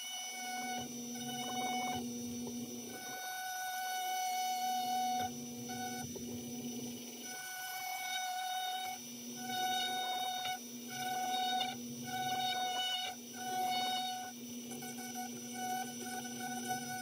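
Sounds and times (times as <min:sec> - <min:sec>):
rotary tool motor whine: 0:00.0 - 0:17.0
bit grinding wood: 0:00.3 - 0:06.8.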